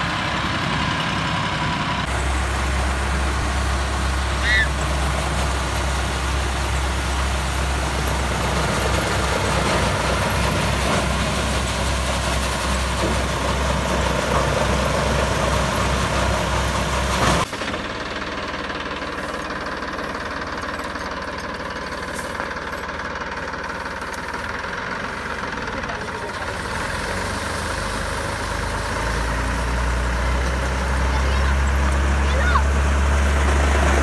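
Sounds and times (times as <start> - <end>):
tractor engine rumble: 0.0 - 34.0.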